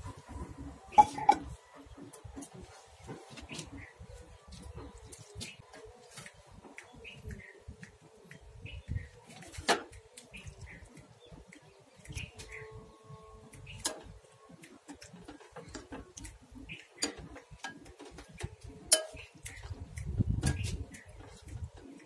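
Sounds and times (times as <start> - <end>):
faint bird chirps: 3.5 - 14.5
soft ticks: 5.1 - 22.0.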